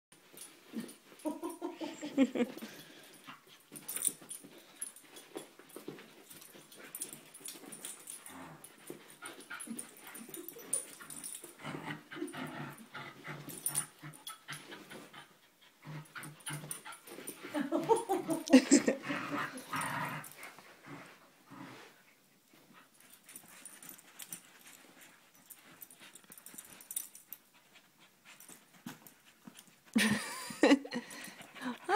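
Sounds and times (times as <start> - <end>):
puppies growling in play: 6.3 - 22.2.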